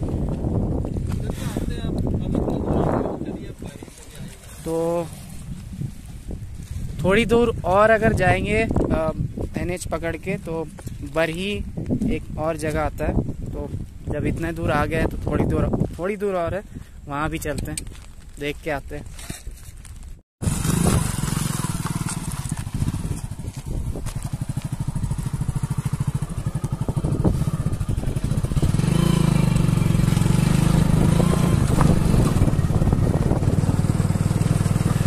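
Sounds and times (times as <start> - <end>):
motorcycle engine running: 20.4 - 35.0.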